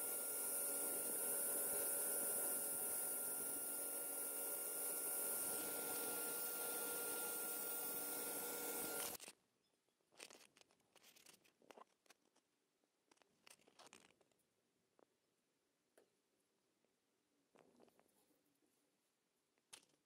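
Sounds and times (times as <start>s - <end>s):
power tool motor running: 0.0s - 9.2s
faint clicks and rustles: 9.2s - 15.1s.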